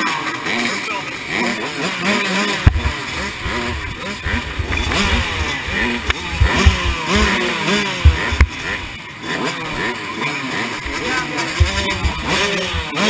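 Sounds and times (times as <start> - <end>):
dirt bikes revving: 0.0 - 13.0
sharp knocks: 2.6 - 8.7, 10.9 - 13.0.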